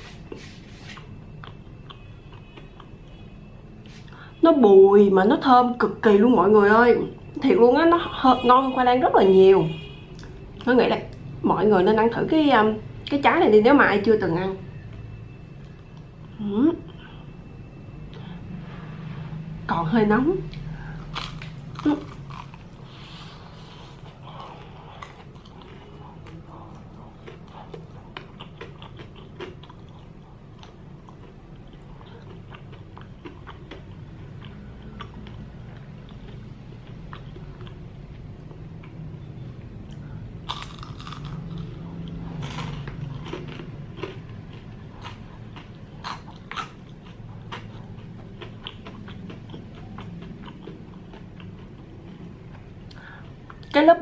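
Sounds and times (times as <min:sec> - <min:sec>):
steady low hum: 0:00.0 - 0:54.0
crunching fried batter: 0:20.8 - 0:37.8, 0:40.5 - 0:53.1.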